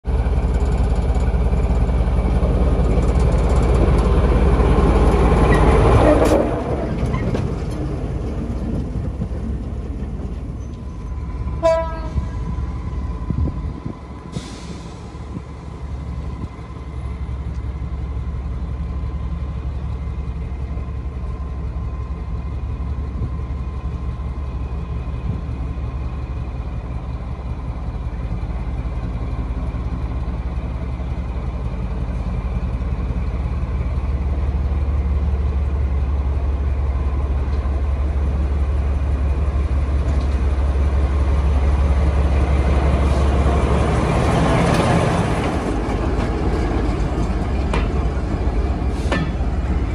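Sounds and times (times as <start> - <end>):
locomotive engine rumbling: 0.0 - 49.9
train horn toot: 6.0 - 6.6, 11.6 - 12.4.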